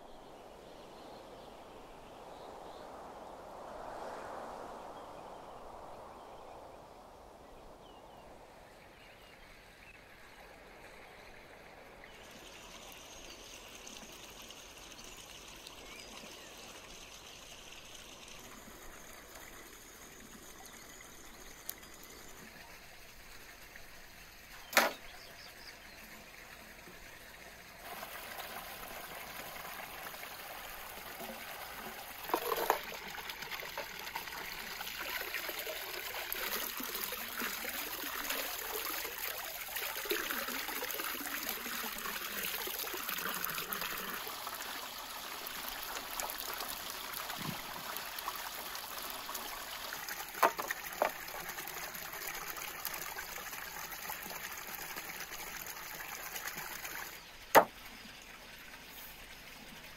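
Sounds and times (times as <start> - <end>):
water splashing into stone basin: 27.8 - 53.0
short knocks: 57.5 - 57.7.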